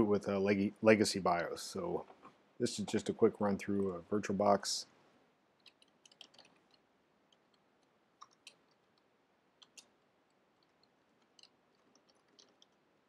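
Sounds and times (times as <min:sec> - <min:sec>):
keyboard keys clicking: 0:05.6 - 0:06.7.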